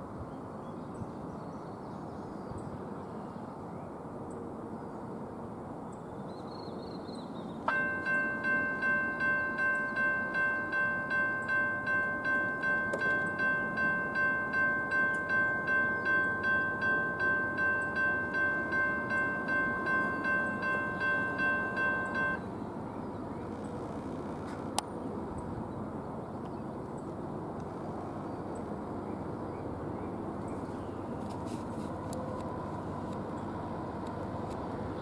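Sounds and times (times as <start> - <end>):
railroad bell ringing: 7.7 - 22.5.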